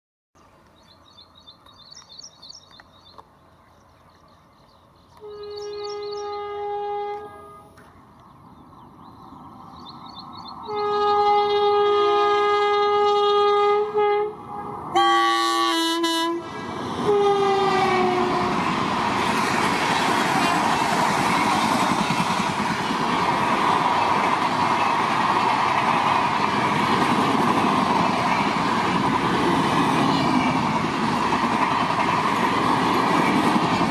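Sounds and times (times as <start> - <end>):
locomotive horn blasts: 5.2 - 7.8, 10.7 - 18.6
train wheels on rails: 15.7 - 33.9.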